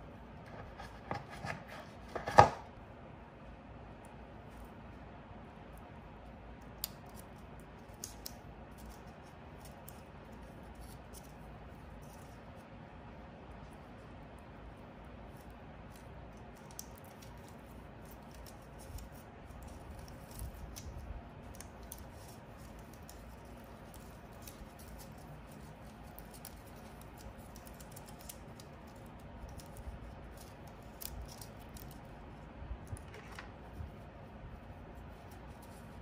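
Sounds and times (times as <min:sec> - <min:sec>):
cable clicks and rustles: 0:15.9 - 0:34.0.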